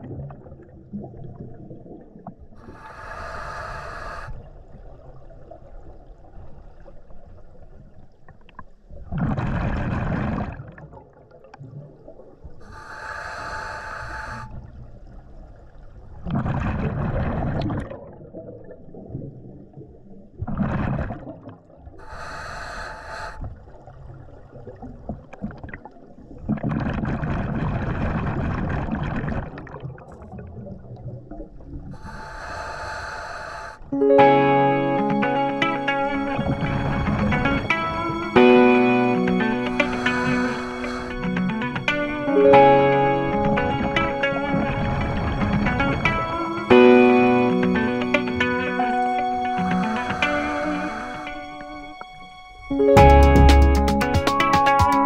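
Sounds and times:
exhaled bubbles bursting: 0:00.0 - 0:02.5, 0:09.1 - 0:12.4, 0:16.2 - 0:21.9, 0:24.3 - 0:31.9
regulator hissing inhale: 0:02.6 - 0:04.4, 0:12.6 - 0:14.6, 0:22.0 - 0:23.4, 0:32.0 - 0:33.8, 0:39.7 - 0:41.5, 0:50.1 - 0:51.4.

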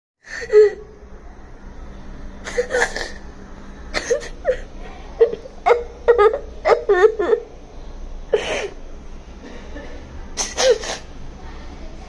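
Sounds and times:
child crying and sobbing: 0:02.4 - 0:03.2, 0:04.0 - 0:07.5.

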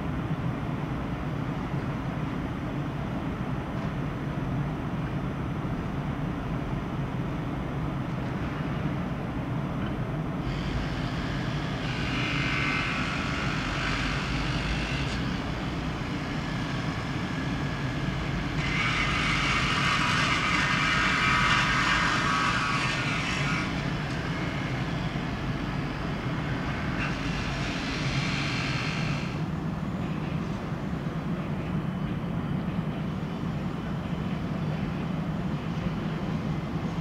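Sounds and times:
electric train hum: 0:00.0 - 0:37.0.

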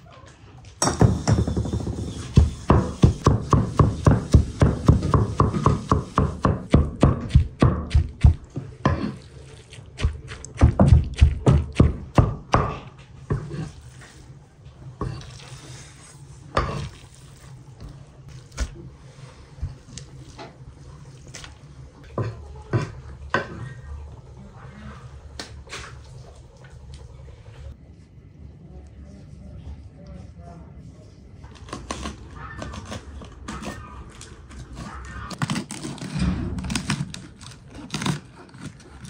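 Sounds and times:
scraping of mixture on board: 0:01.1 - 0:12.1, 0:12.7 - 0:14.1.

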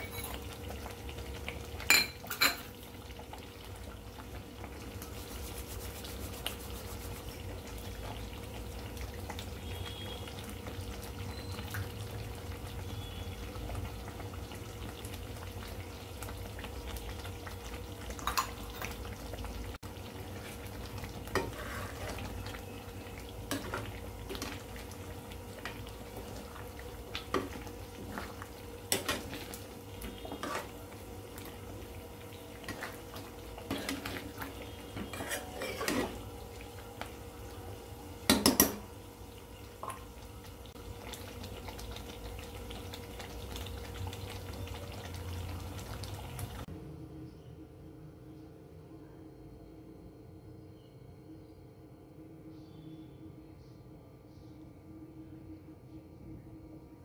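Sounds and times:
curry sizzling and simmering: 0:00.0 - 0:46.7
metal spatula scraping pan: 0:21.4 - 0:22.3, 0:30.2 - 0:30.8, 0:35.0 - 0:36.2.

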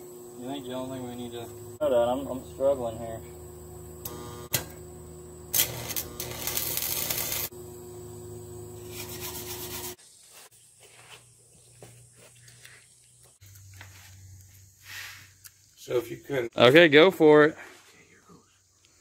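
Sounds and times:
machine hum: 0:00.0 - 0:10.0
welding arc crackling and hissing: 0:04.0 - 0:07.6, 0:08.7 - 0:10.0.

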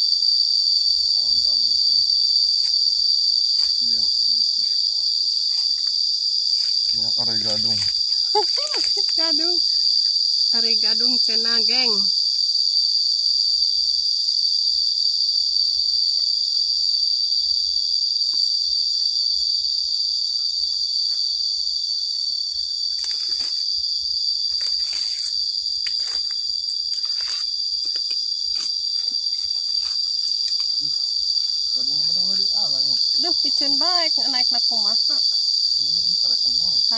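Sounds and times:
insects shrilling: 0:00.0 - 0:36.9
leaves rustling: 0:22.7 - 0:23.7, 0:24.5 - 0:31.8.

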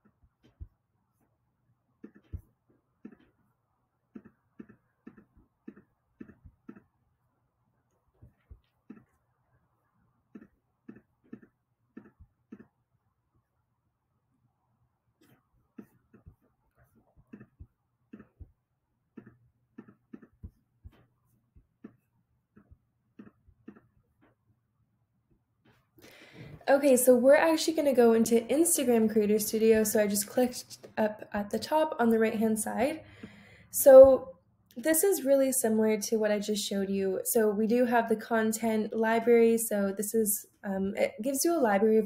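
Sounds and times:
computer mouse clicks: 0:02.0 - 0:02.4, 0:04.1 - 0:06.9, 0:10.3 - 0:12.7, 0:17.3 - 0:18.5, 0:19.2 - 0:20.5, 0:22.6 - 0:23.9.

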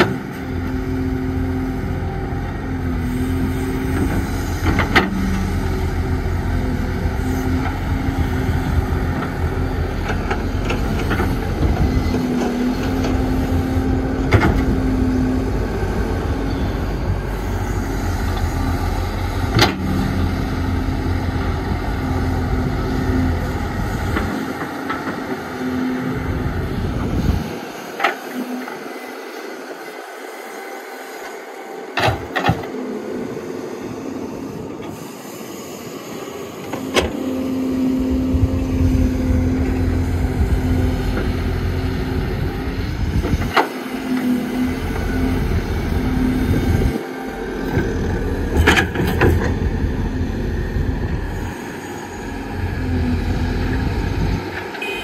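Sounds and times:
heavy diesel engines running: 0:00.0 - 0:55.0.

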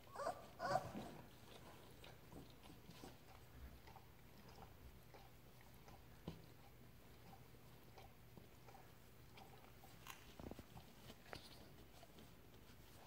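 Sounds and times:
puppy whimpering: 0:00.0 - 0:01.2
dog licking and chewing: 0:00.1 - 0:13.0.

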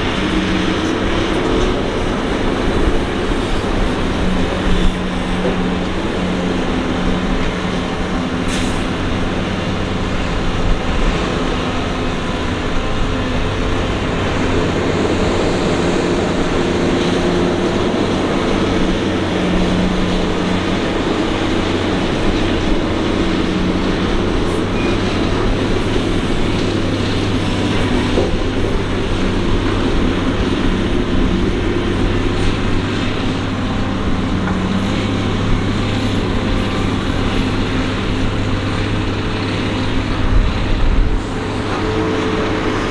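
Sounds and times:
excavator diesel engine running: 0:00.0 - 0:42.9.

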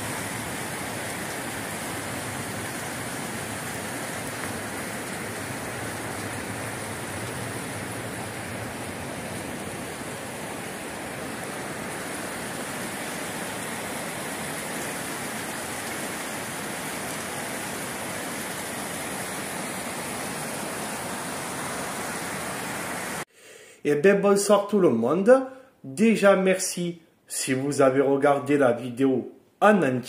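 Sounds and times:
river water rushing: 0:00.0 - 0:23.2.

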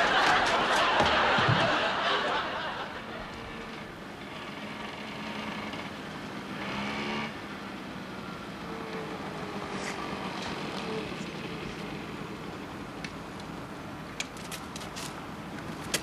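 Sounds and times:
audience laughing: 0:00.0 - 0:03.9
small motorcycle engine running: 0:03.0 - 0:13.0.

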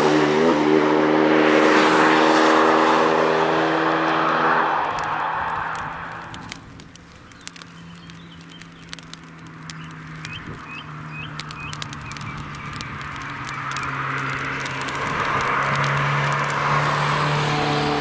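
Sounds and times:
car engine approaching: 0:00.0 - 0:18.0
bird chirping: 0:07.1 - 0:14.0.

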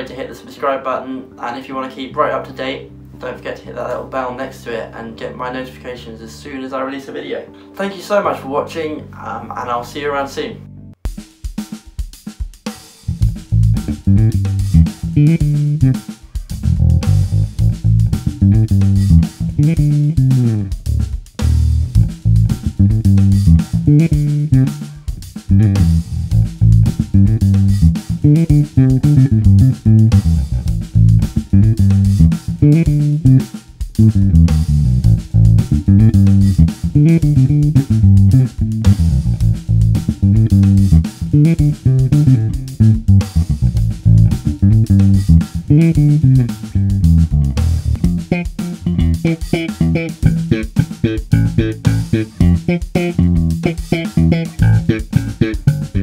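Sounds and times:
electric bass played fingerstyle: 0:13.0 - 0:56.0.

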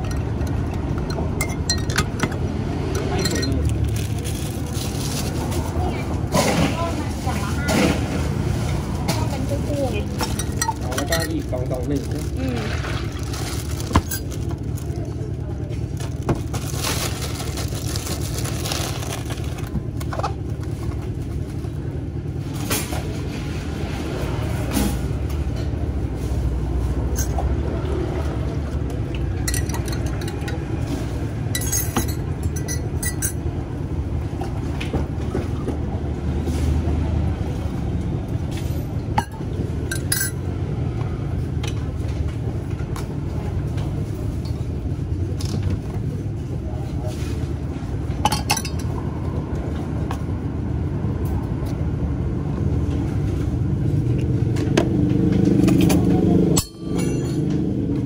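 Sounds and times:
spoons clinking against cups: 0:00.0 - 0:03.8, 0:10.2 - 0:11.5, 0:29.4 - 0:30.7, 0:31.6 - 0:33.4, 0:39.2 - 0:40.4.

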